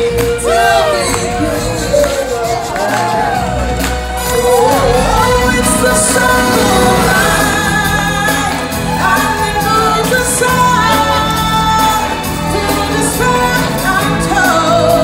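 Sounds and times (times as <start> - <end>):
low musical backing: 0.0 - 15.0
voices singing long notes: 0.0 - 15.0.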